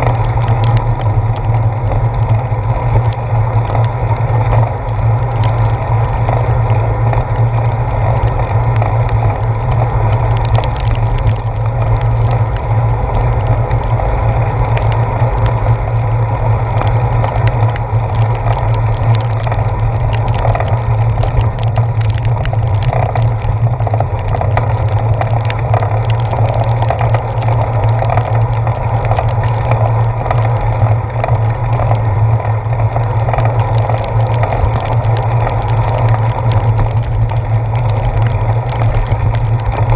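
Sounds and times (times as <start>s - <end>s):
low rumble of tyre vibration: 0.0s - 39.9s
small ticks and taps: 0.0s - 39.9s.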